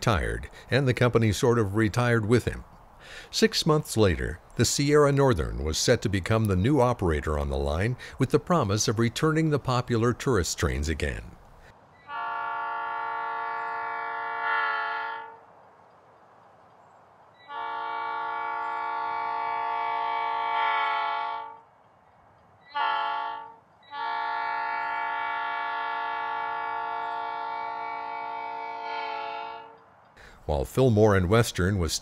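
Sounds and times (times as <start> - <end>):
locomotive air horn blasts: 12.0 - 15.4, 17.4 - 21.6, 22.7 - 29.8.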